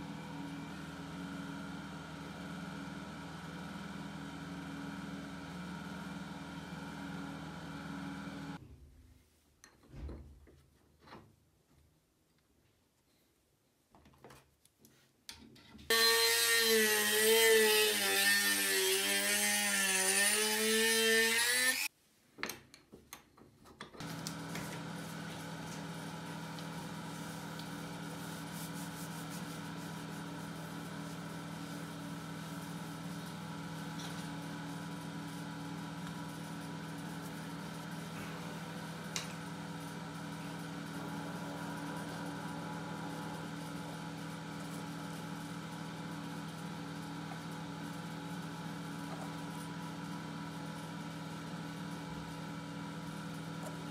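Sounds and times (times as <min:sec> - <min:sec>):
power tool running: 0:15.9 - 0:21.9, 0:24.0 - 0:28.6, 0:29.6 - 0:47.1
steady motor hum: 0:24.0 - 0:53.9.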